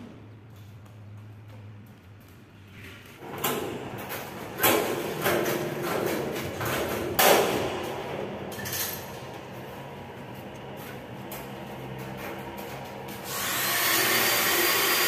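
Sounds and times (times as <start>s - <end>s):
knocks and bangs on metal frames: 3.2s - 9.5s.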